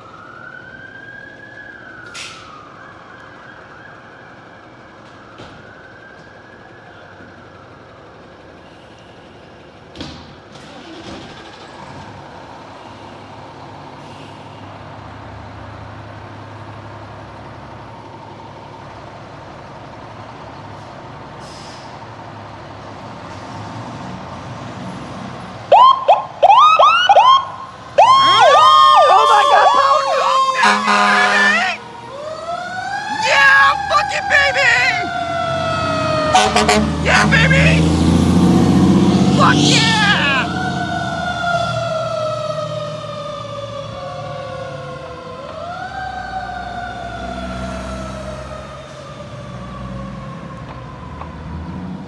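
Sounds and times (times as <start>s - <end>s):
diesel engines idling: 6.0s - 51.8s
electronic siren sweeping: 25.7s - 37.9s
steady horn-like siren tone: 25.7s - 37.9s.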